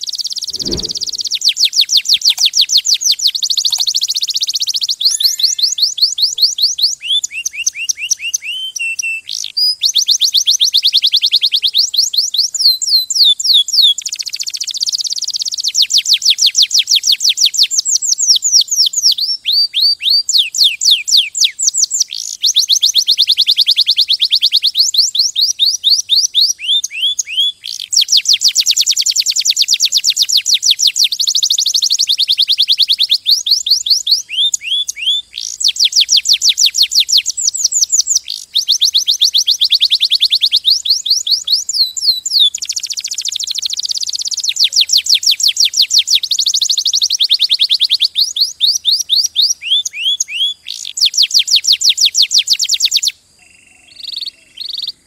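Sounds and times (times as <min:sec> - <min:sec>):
canary singing trills: 0:03.3 - 0:11.7, 0:19.0 - 0:55.0.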